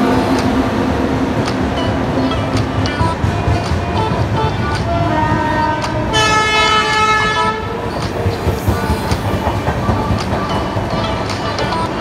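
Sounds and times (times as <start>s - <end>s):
train rumbling: 0.0s - 12.0s
train horn: 4.1s - 7.8s.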